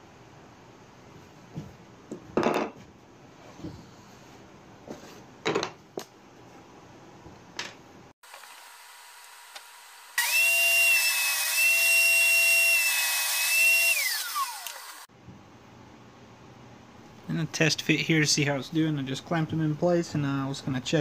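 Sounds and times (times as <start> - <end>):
table saw whining: 8.2 - 15.1.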